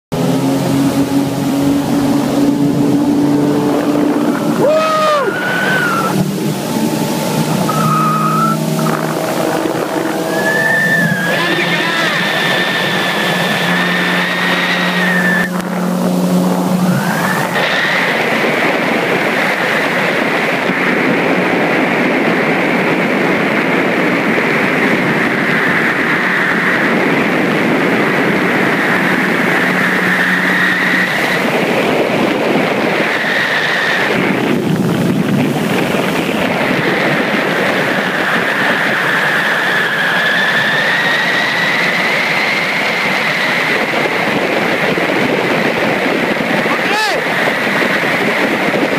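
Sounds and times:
motorboats at speed: 0:00.0 - 0:48.9
water rushing along hulls: 0:00.1 - 0:48.9
wind buffeting microphone: 0:00.1 - 0:48.9
high-pitched sounds: 0:00.4 - 0:17.8.

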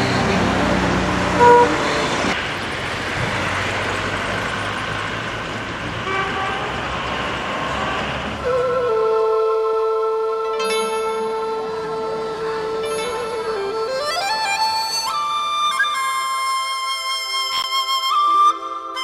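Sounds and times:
car horn honk: 0:00.0 - 0:02.4, 0:06.0 - 0:07.0
passing cars: 0:00.0 - 0:16.4.

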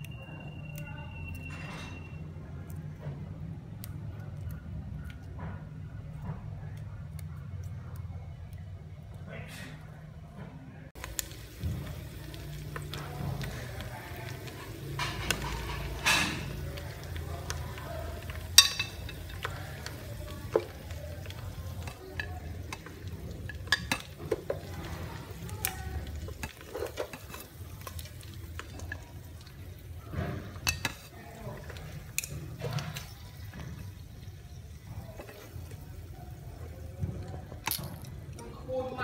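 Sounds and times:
chopsticks clicking on pot and plate: 0:11.0 - 0:29.9, 0:30.6 - 0:33.2.

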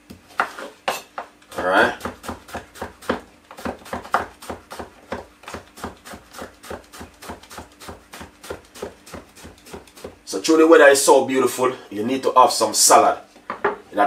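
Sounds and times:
knife chopping on wooden board: 0:00.1 - 0:10.2.

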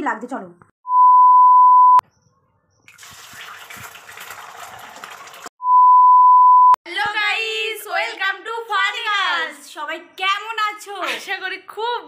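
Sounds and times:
test tone beep: 0:00.9 - 0:02.0, 0:05.6 - 0:06.8.

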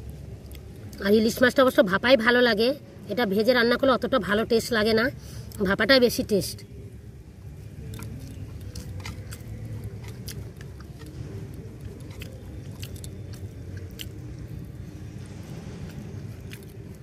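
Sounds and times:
low steady rumble: 0:00.0 - 0:17.0
mouth chewing clicks and smacks: 0:00.4 - 0:01.0, 0:07.6 - 0:17.0.

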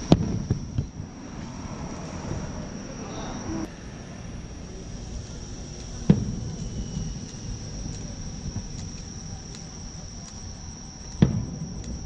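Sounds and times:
firework boom: 0:00.0 - 0:03.7, 0:05.6 - 0:10.2, 0:11.1 - 0:12.0
crickets chirping: 0:00.0 - 0:12.0.

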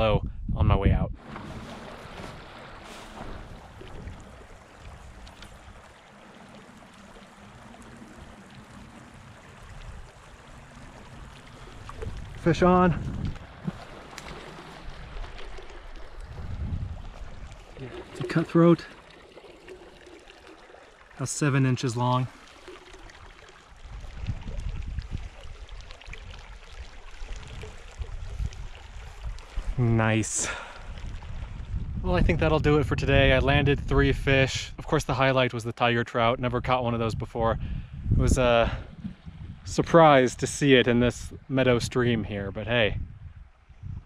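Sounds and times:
wind rumble on microphone: 0:00.0 - 0:06.0, 0:06.8 - 0:13.9, 0:14.8 - 0:17.9, 0:23.8 - 0:35.1, 0:36.3 - 0:44.0
stream trickling over stones: 0:01.2 - 0:31.8.

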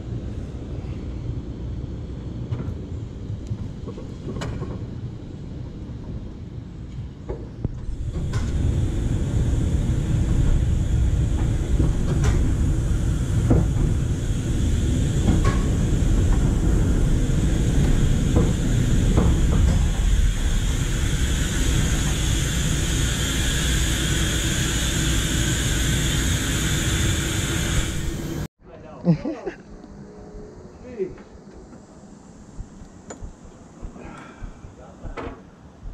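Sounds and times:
streetcar rumbling on track: 0:00.0 - 0:28.5.

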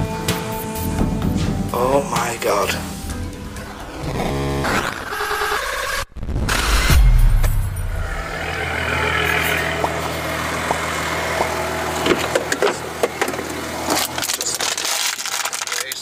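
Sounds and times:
deep boom: 0:06.1 - 0:08.4
car engine idling: 0:07.8 - 0:14.6.

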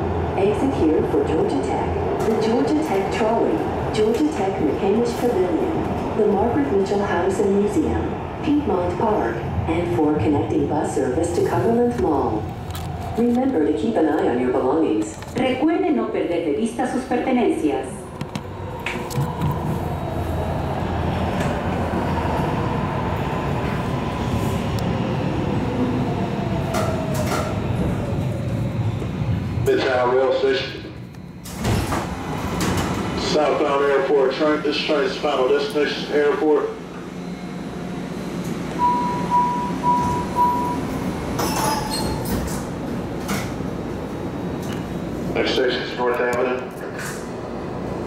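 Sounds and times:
low rumble of rail car: 0:00.0 - 0:48.0
door-closing warning beeps: 0:38.7 - 0:42.4
doors hissing and squealing: 0:40.0 - 0:42.7.

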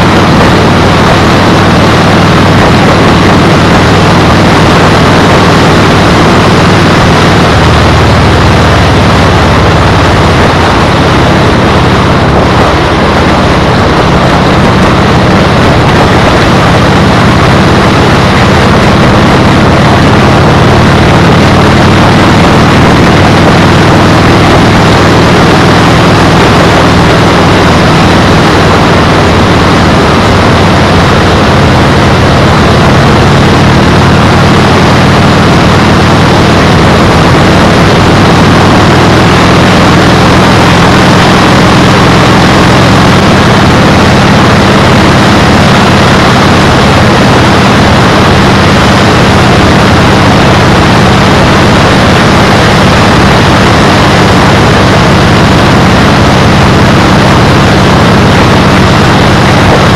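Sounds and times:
low drone: 0:00.0 - 0:59.9.

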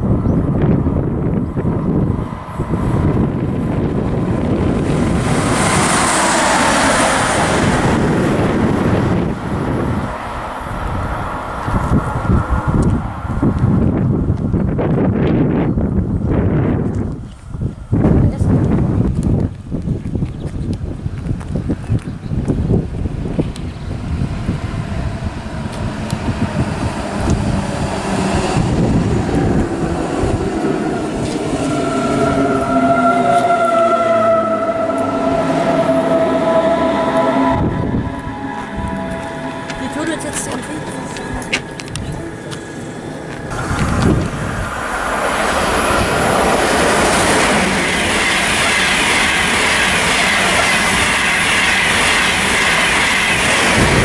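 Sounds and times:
locomotives passing at speed: 0:00.0 - 0:54.0
wheel and rail noise: 0:00.0 - 0:54.0
electric traction whine: 0:23.2 - 0:54.0.

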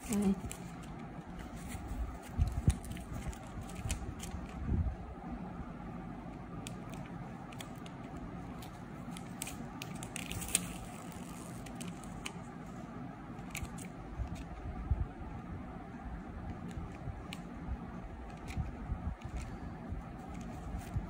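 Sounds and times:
plastic tape crinkling: 0:00.0 - 0:04.6, 0:06.6 - 0:12.4
steady low hum: 0:00.0 - 0:21.0.

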